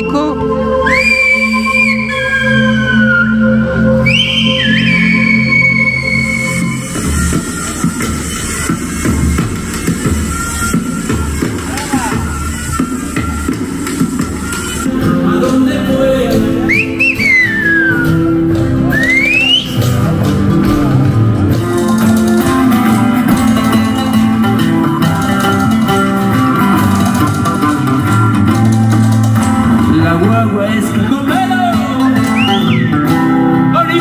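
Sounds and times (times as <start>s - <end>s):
guitar: 0.0s - 34.0s
finger whistle glides: 0.8s - 8.3s, 16.6s - 19.9s, 32.2s - 33.1s
hand drums: 6.9s - 15.7s, 16.3s - 33.4s
person singing: 14.9s - 18.0s, 29.7s - 34.0s.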